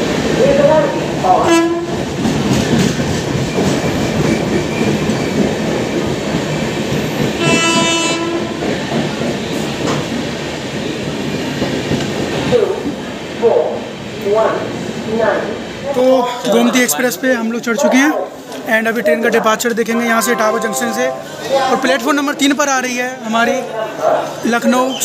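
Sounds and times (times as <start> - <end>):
train wheels on rails: 0.0 - 25.0
train horn blast: 1.4 - 2.0, 7.4 - 8.6, 20.0 - 22.2.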